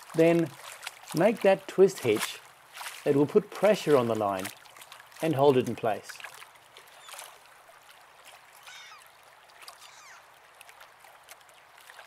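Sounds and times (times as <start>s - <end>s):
water lapping: 0.0s - 12.0s
falling bird calls: 6.9s - 7.4s, 8.6s - 10.4s.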